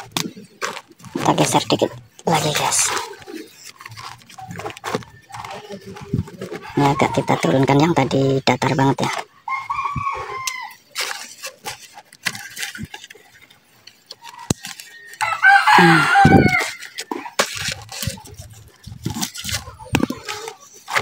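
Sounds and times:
rooster crowing: 9.5 - 10.8, 15.1 - 16.9.

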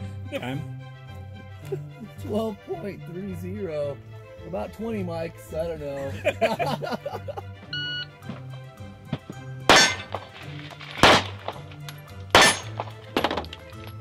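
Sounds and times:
background music: 0.0 - 14.0
short electronic beep: 7.8 - 8.1
pistol shots: 9.7 - 13.5.

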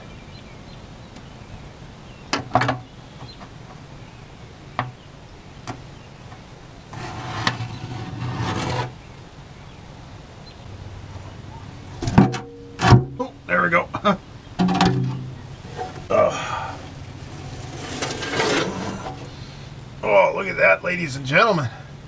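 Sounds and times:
oil pan scraping: 6.3 - 9.0, 12.0 - 13.3, 14.6 - 19.7.

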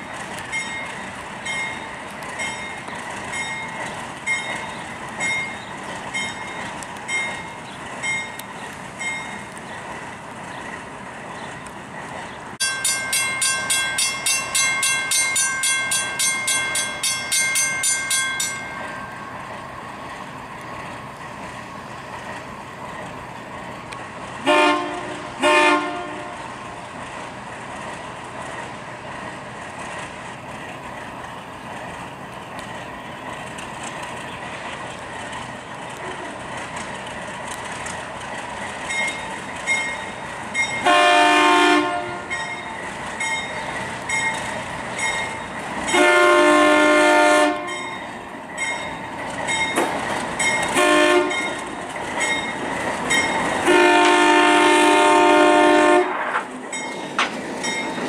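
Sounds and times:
low locomotive rumble: 0.0 - 58.0
bell ringing rapidly: 12.6 - 19.0
locomotive air horn blasts: 24.4 - 26.4, 40.8 - 42.4, 45.9 - 47.8, 50.7 - 51.5, 53.6 - 56.3.

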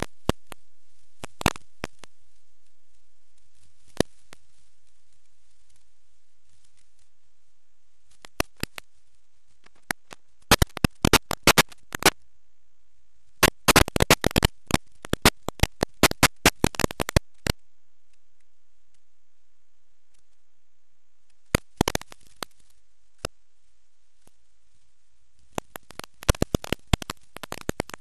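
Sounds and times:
crackling static clicks: 0.0 - 28.0
faint steady hiss: 0.0 - 28.0.

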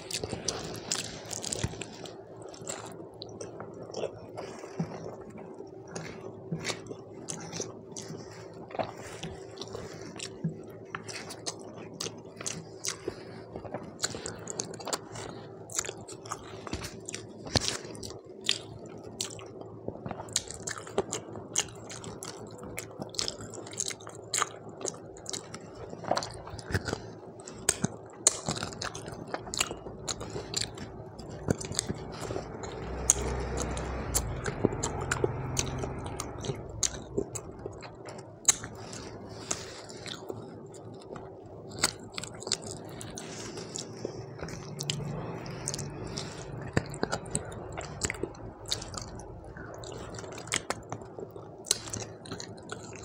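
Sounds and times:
close chewing: 0.0 - 53.0.

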